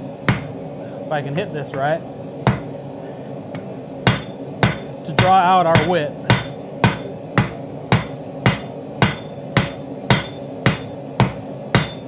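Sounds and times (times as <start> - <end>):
hammer striking steel on anvil: 0.2 - 0.6, 2.5 - 2.7, 3.6 - 12.0.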